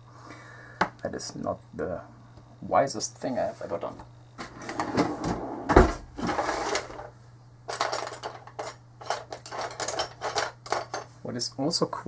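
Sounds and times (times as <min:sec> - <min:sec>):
small parts clicking and clattering: 0:07.7 - 0:11.2.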